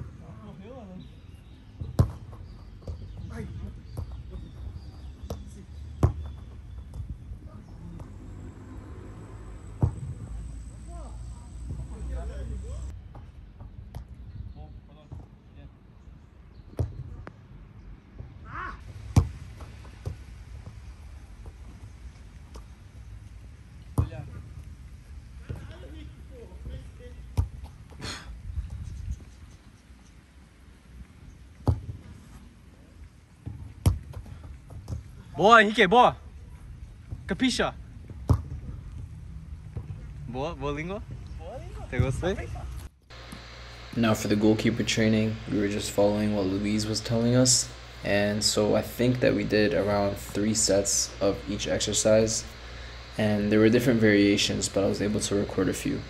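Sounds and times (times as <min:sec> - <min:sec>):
football being struck: 0:01.8 - 0:03.1, 0:09.7 - 0:10.3, 0:18.9 - 0:20.2, 0:24.0 - 0:24.2, 0:38.2 - 0:38.7.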